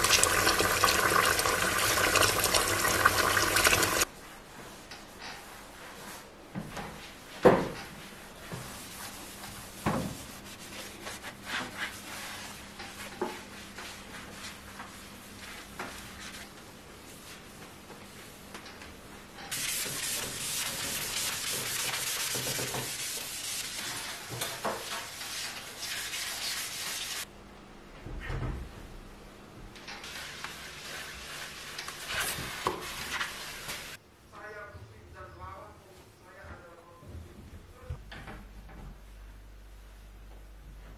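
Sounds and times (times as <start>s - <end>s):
cloth rubbing a surface: 8.0s - 18.4s, 19.5s - 27.3s, 30.1s - 34.0s.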